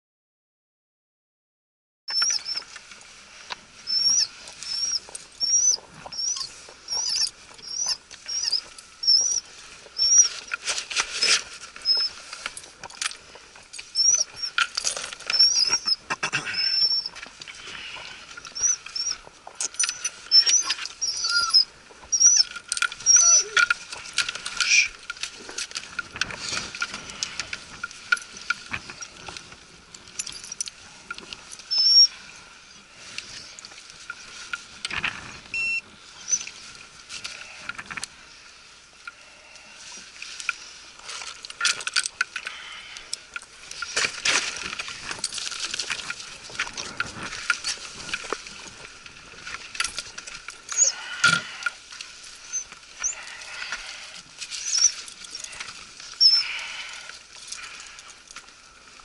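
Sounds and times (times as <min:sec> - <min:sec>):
dog whining: 0:03.9 - 0:09.4, 0:19.8 - 0:23.7.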